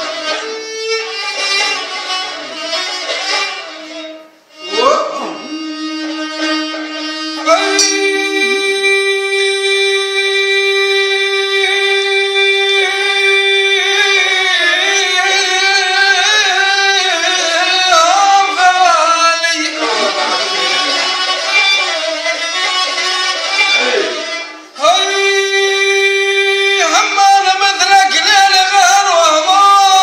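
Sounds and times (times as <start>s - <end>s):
bowed spike fiddle: 0.0s - 17.9s, 19.4s - 24.7s
man singing: 5.4s - 20.2s, 24.8s - 30.0s.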